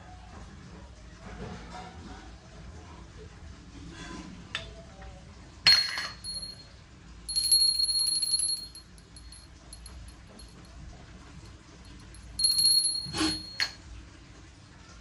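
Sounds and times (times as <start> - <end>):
small metal bell ringing: 5.7 - 10.8, 11.9 - 13.8.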